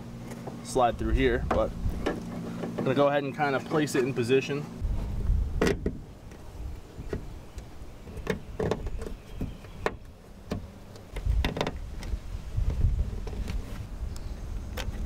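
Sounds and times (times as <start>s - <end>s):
low rumble: 4.7s - 8.0s.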